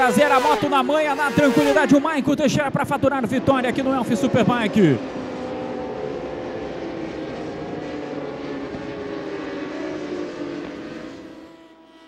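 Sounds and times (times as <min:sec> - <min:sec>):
motorcycle engines at high revs: 0:00.0 - 0:12.0.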